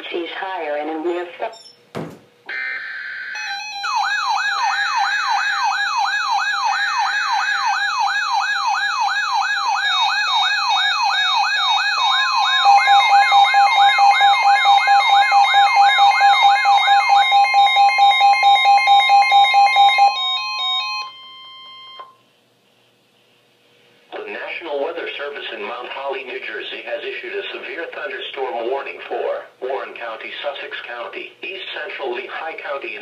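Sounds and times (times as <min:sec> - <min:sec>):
electronic siren tone sweeping: 0:02.5 - 0:21.2
steady alarm tone: 0:02.5 - 0:22.2.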